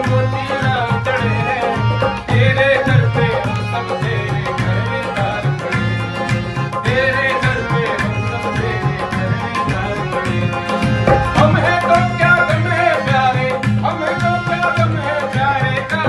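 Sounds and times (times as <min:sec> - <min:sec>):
harmonium: 0:00.0 - 0:16.0
man singing: 0:00.0 - 0:16.0
steady drum beat: 0:00.0 - 0:16.0.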